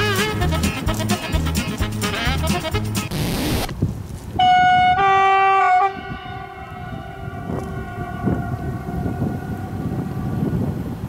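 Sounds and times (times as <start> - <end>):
train horn: 4.4 - 10.9.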